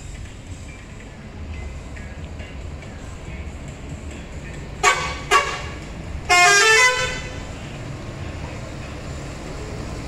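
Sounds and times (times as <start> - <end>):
bus engine running low: 0.0 - 10.0
bus horn blasts: 4.8 - 7.5.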